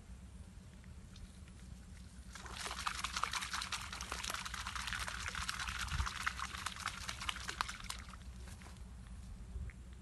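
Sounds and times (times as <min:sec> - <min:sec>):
water splashing: 0:02.3 - 0:08.6.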